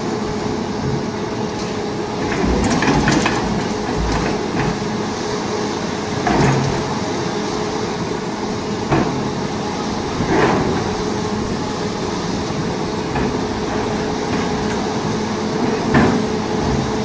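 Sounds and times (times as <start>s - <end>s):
excavator diesel engine running: 0.0s - 17.0s.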